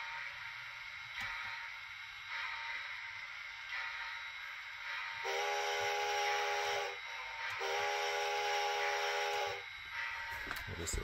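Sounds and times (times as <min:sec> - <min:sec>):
steady hiss: 0:00.0 - 0:11.0
model train whistle blasts: 0:05.2 - 0:10.5.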